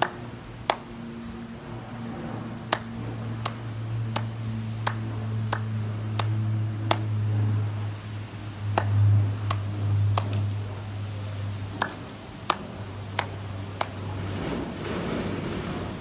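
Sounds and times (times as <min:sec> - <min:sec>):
steady low hum: 0:00.0 - 0:16.0
sharp single clicks: 0:11.7 - 0:14.0.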